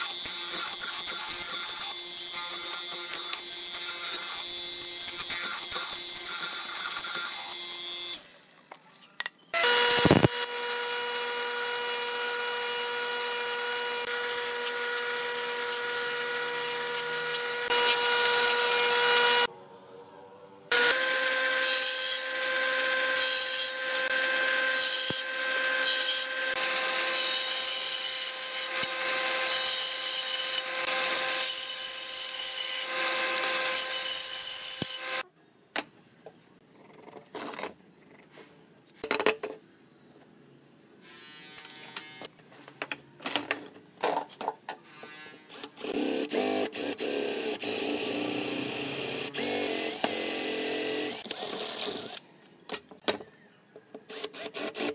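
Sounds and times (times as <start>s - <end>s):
cordless drill boring into wood: 9.6s - 19.5s, 20.7s - 35.2s, 45.5s - 52.2s
woodworking machine whining: 9.6s - 19.5s, 20.7s - 35.2s.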